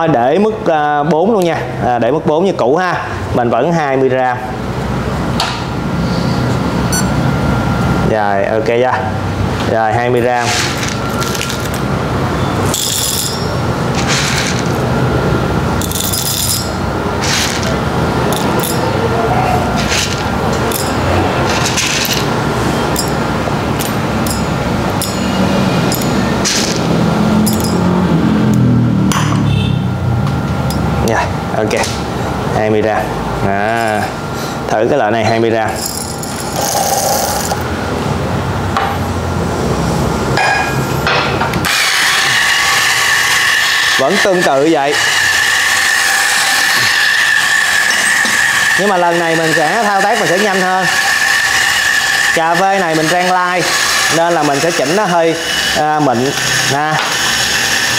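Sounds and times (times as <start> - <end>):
steady background hum: 0.0 - 57.9
coffee grinder grinding beans: 10.4 - 11.8, 12.7 - 14.9, 15.8 - 19.0, 19.7 - 22.4, 23.8 - 27.9, 35.8 - 37.6, 41.7 - 57.9
coffee beans clinking into metal cup: 12.7 - 14.8, 15.8 - 19.0, 19.8 - 22.3, 22.9 - 23.2, 23.8 - 26.8, 27.4 - 27.8, 35.8 - 37.6.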